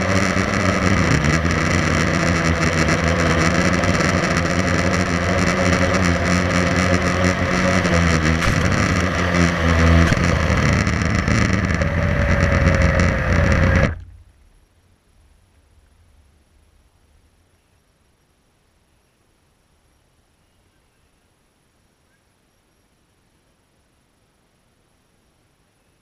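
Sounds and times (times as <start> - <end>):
quadcopter motors buzzing: 0.0 - 14.0.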